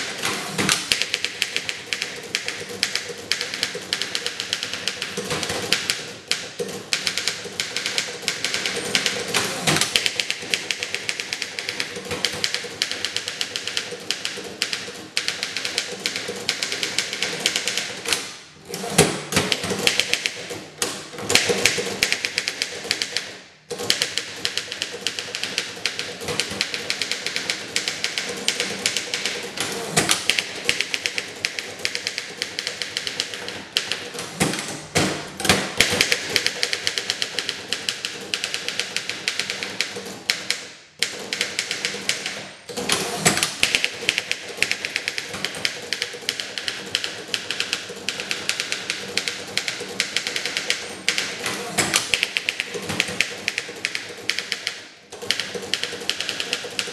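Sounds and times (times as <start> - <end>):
typewriter typing fast: 0.0 - 56.9.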